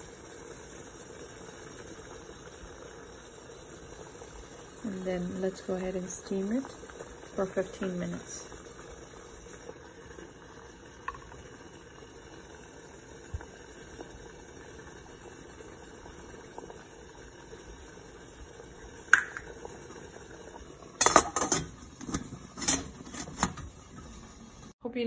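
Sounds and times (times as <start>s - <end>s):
water boiling in a steamer: 0.0s - 25.0s
steel lid clattering: 21.0s - 23.7s.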